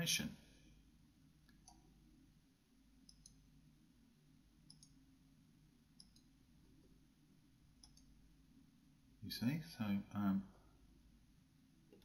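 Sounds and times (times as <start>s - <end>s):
faint computer mouse clicks: 1.4s - 1.9s, 3.0s - 3.4s, 4.6s - 5.0s, 6.0s - 6.3s, 7.8s - 8.1s.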